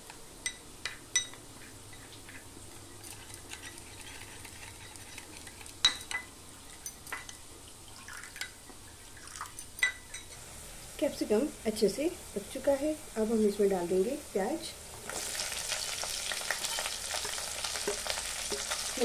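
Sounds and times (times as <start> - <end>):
liquid swishing in a bowl: 3.0 - 5.7.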